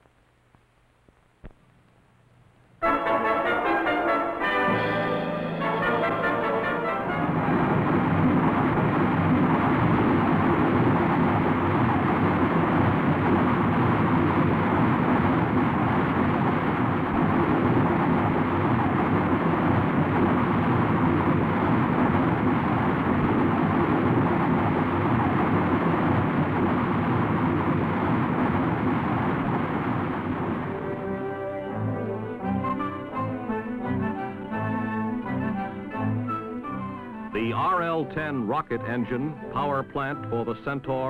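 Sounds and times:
rocket engine rushing: 0:03.7 - 0:36.1.

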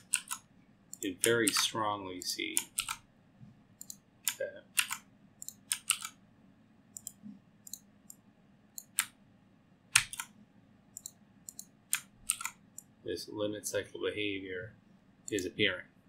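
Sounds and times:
computer mouse clicks: 0:00.0 - 0:03.0, 0:03.8 - 0:06.2, 0:06.9 - 0:08.2, 0:08.8 - 0:09.2, 0:09.9 - 0:10.3, 0:11.0 - 0:12.9.

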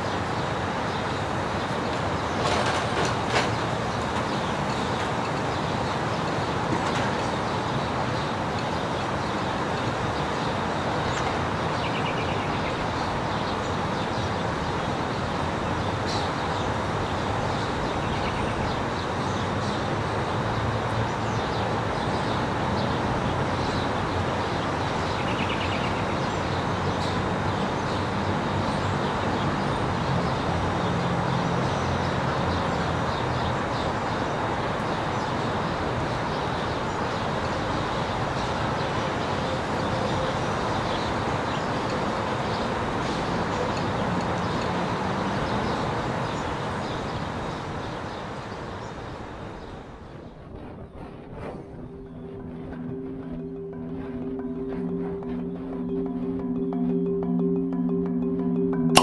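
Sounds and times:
car tyre and wind noise: 0:48.0 - 0:52.1.

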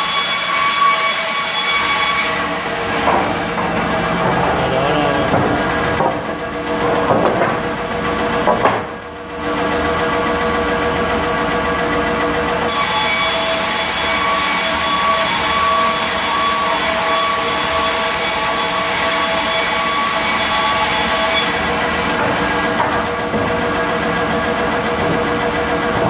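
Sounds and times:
band saw running: 0:00.0 - 0:26.0.

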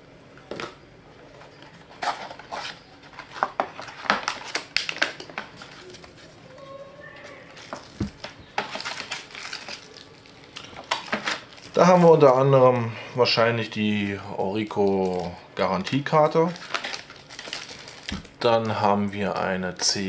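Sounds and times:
plastic bag and paper rustling: 0:01.4 - 0:12.9, 0:14.6 - 0:19.1
cardboard knocks: 0:08.0 - 0:08.2.

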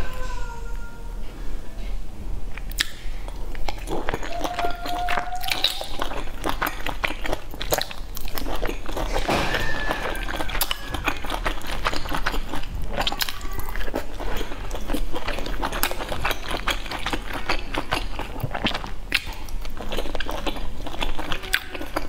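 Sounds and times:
chewing dumplings: 0:02.5 - 0:22.0
quick mouth clicks: 0:02.6 - 0:04.2.

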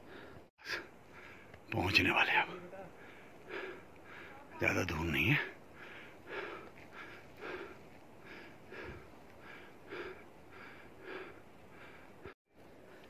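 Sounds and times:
person breathing hard: 0:00.0 - 0:01.5, 0:02.9 - 0:04.5, 0:05.6 - 0:13.0.

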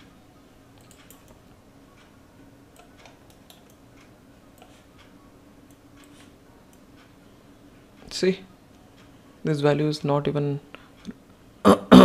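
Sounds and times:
low steady hum: 0:00.0 - 0:12.0
computer mouse clicks: 0:00.8 - 0:01.4, 0:02.8 - 0:05.1.

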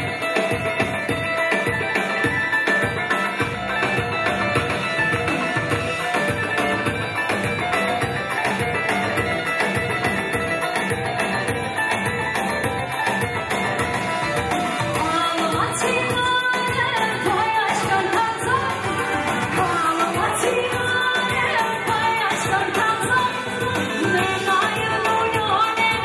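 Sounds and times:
amplified dance music: 0:00.0 - 0:26.0
woman singing through a microphone: 0:12.8 - 0:26.0.

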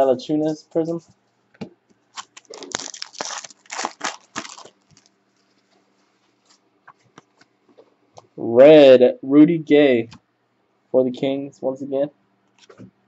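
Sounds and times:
foil wrapper crinkling and tearing: 0:02.2 - 0:05.2.

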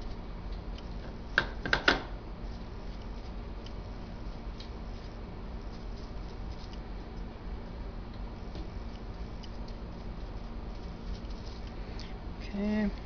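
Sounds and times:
brush dabbing on plastic: 0:02.3 - 0:11.9.

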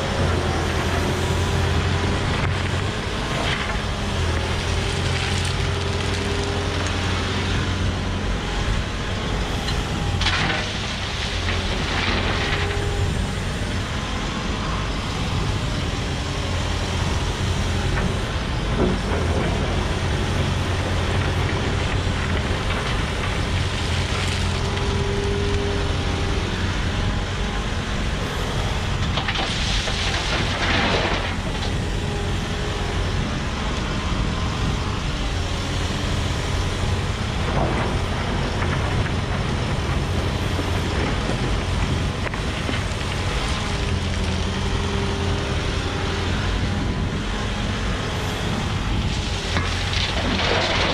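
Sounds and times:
excavator diesel engine running: 0:00.0 - 0:50.9.

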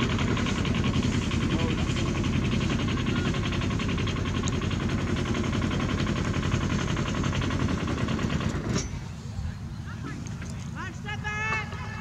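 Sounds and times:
small engine running: 0:00.0 - 0:09.2.

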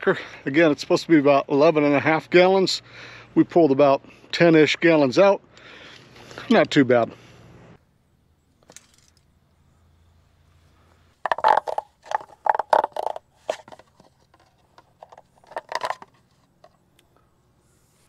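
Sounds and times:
containers being handled: 0:11.2 - 0:16.9.

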